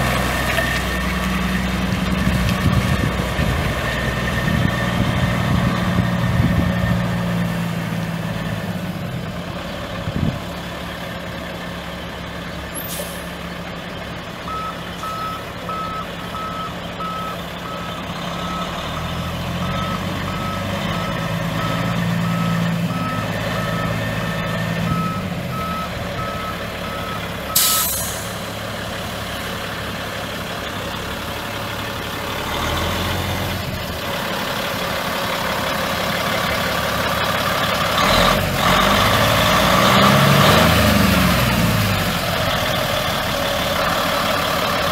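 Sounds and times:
diesel truck engine running: 0:00.0 - 0:44.9
air brakes hiss: 0:12.8 - 0:13.4, 0:27.6 - 0:28.5.

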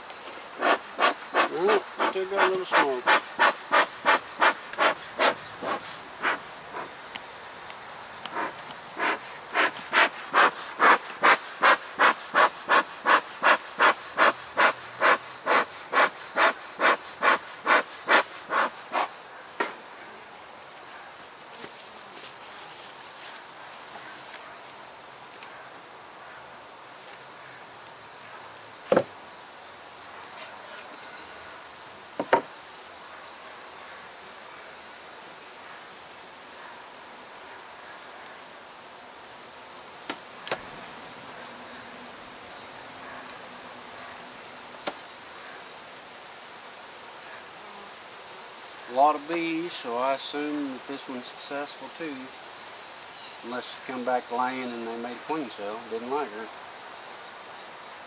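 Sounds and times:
crickets trilling: 0:00.0 - 0:58.0
smoker bellows puffing: 0:00.6 - 0:06.9, 0:08.3 - 0:19.1
sharp knocks: 0:28.9 - 0:29.1, 0:32.2 - 0:32.5.

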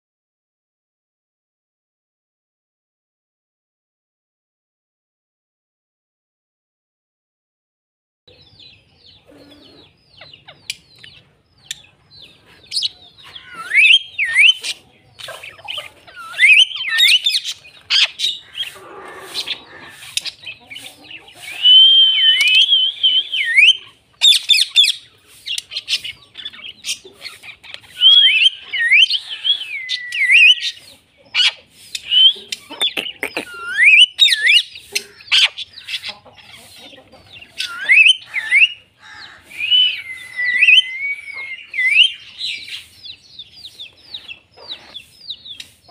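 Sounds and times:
parrots chirping and squawking: 0:09.1 - 0:45.9
swooping whistles: 0:13.6 - 0:14.6, 0:21.6 - 0:23.8, 0:37.6 - 0:38.8, 0:39.6 - 0:42.2.

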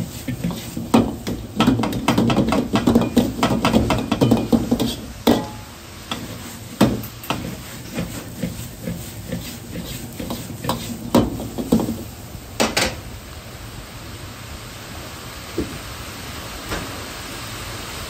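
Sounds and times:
food sizzling: 0:00.0 - 0:16.4
gas burner hiss: 0:00.0 - 0:18.0
metal ladle clanking on wok: 0:00.3 - 0:08.6.

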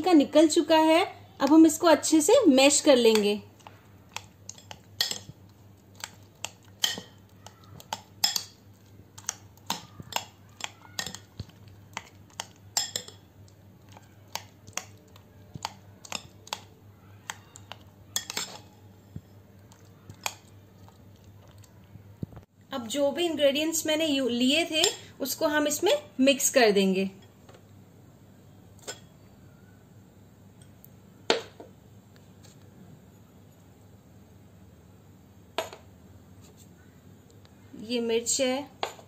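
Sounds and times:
metal spoon scraping glass bowl: 0:18.2 - 0:18.7.

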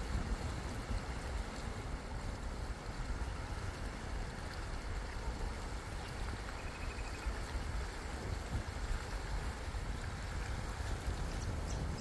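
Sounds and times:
small waves on rocky shore: 0:00.0 - 0:12.0
wind buffeting microphone: 0:07.5 - 0:12.0.

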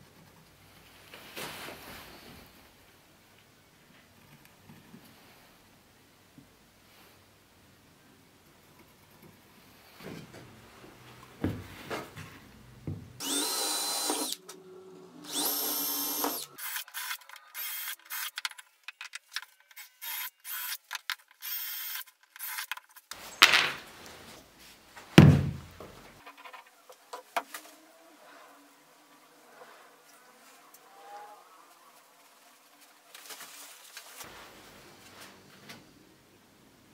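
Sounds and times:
cordless drill driving screws: 0:13.2 - 0:14.5, 0:15.2 - 0:18.5, 0:19.8 - 0:22.7
loud knocks: 0:25.2 - 0:25.7.

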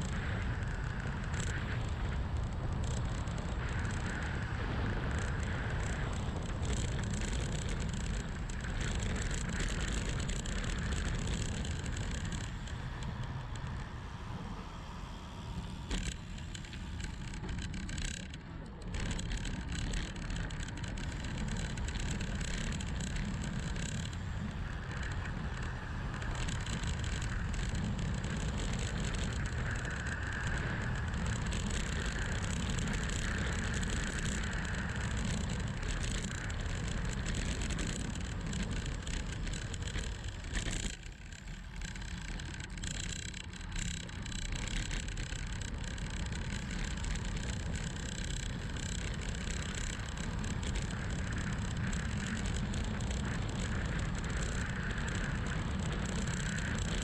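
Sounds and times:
wind rushing over microphone: 0:00.0 - 0:41.0
bicycle tyre noise: 0:00.0 - 0:57.0.

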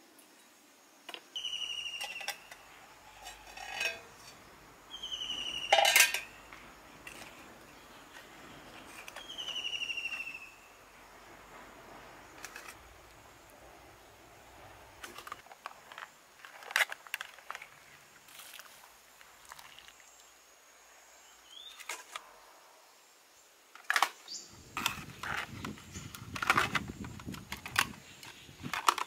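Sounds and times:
metal tongs clinking on pot: 0:02.0 - 0:04.4, 0:05.7 - 0:06.3.

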